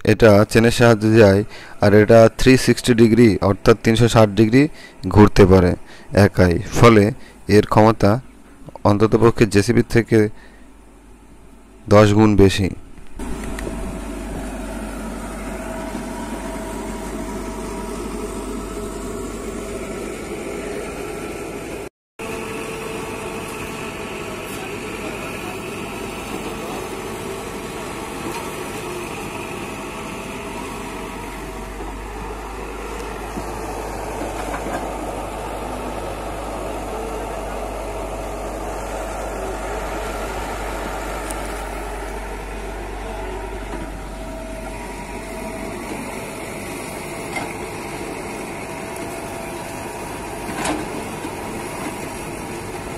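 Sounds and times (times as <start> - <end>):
excavator diesel engine running: 0.0 - 7.5, 13.2 - 52.9.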